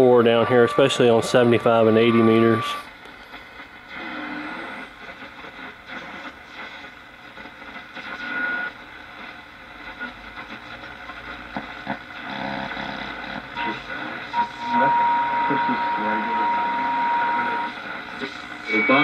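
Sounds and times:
radio shortwave static: 0.0s - 19.0s
radio whistle: 0.3s - 2.9s, 13.6s - 19.0s.

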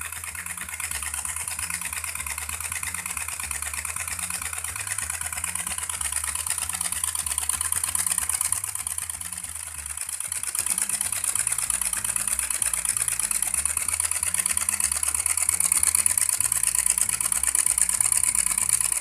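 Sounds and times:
small engines mechanical clatter: 0.0s - 19.0s.

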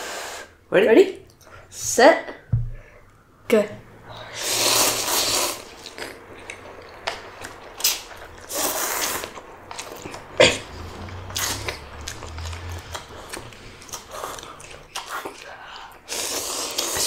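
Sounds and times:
sharp sucking sounds: 4.0s - 6.2s, 7.4s - 17.0s
noodles being slurped: 4.4s - 6.3s, 7.2s - 17.0s.

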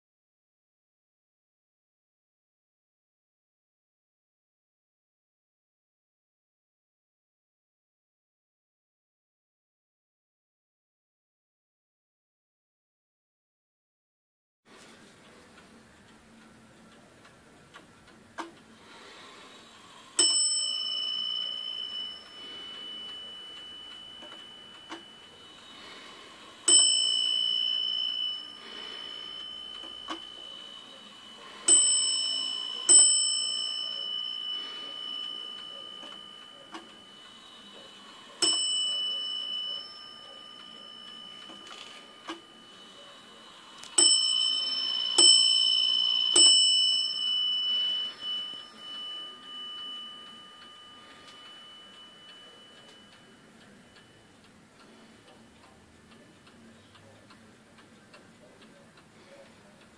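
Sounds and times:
wall clock bell striking: 20.1s - 54.4s.

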